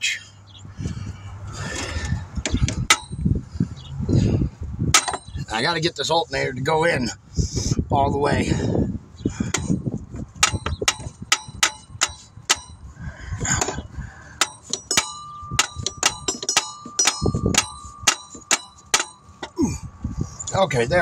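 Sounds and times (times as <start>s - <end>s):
sharp metal taps: 2.4s - 3.4s, 4.9s - 5.5s, 9.5s - 19.6s
steady ringing tone: 14.4s - 19.5s.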